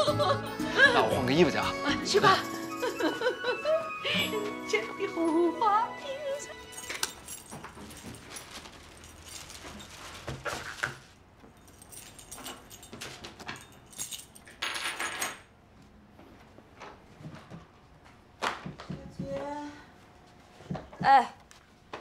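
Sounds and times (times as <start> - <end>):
plastic bag rustling: 6.1 - 13.7
keys jangling: 6.7 - 10.1, 11.6 - 15.4.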